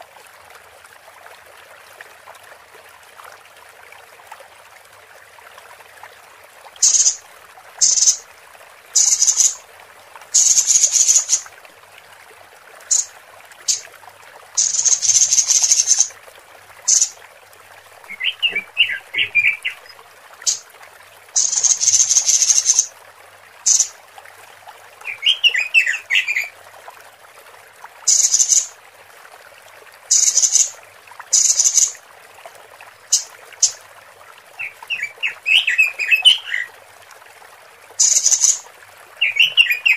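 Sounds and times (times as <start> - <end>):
background hiss: 6.7 - 11.7, 12.8 - 24.1, 28.0 - 28.8, 30.0 - 32.0, 38.0 - 38.6
bird giving high buzzy calls: 7.8 - 8.2, 9.0 - 9.6, 14.6 - 16.1, 18.1 - 20.6, 21.4 - 22.9, 23.7 - 23.9, 30.1 - 30.7.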